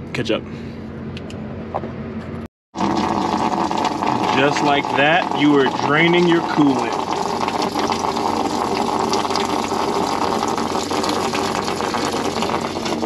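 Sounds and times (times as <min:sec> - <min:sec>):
coolant pouring and splashing on floor: 0:02.8 - 0:13.0.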